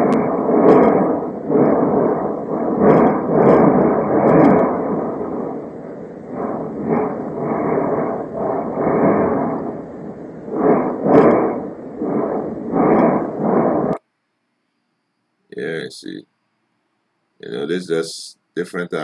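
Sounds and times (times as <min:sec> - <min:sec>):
muffled rumbling roar of eruption: 0:00.0 - 0:14.0.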